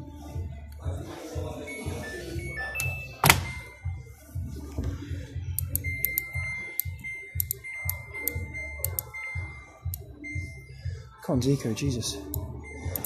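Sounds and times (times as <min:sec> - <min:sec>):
high electronic beep tone: 0:01.5 - 0:04.2, 0:05.6 - 0:11.0, 0:12.2 - 0:13.0
low pulsing beat: 0:03.5 - 0:11.1.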